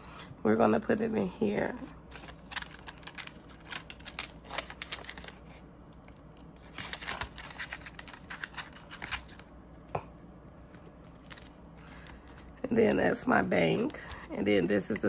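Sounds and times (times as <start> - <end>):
plastic and paper crinkling: 1.6 - 9.5, 10.6 - 12.6.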